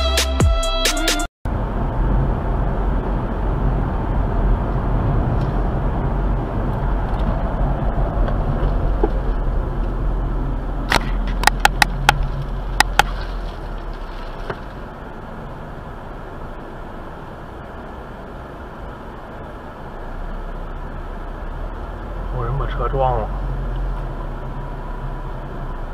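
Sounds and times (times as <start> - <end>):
car road and engine rumble: 1.4 - 25.9.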